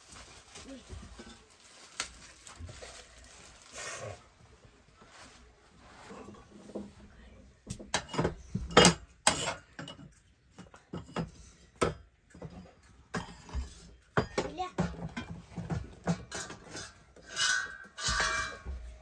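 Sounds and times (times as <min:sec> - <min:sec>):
metal tongs clanking on pot: 0:07.9 - 0:13.5, 0:14.2 - 0:18.7.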